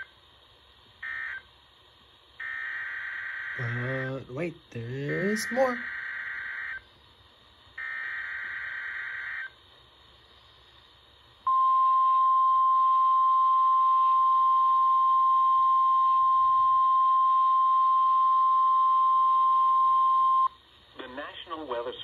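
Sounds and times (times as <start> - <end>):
loud alarm tone: 2.4 - 4.2, 5.1 - 6.8, 7.8 - 9.6
digital data burst: 2.4 - 6.8.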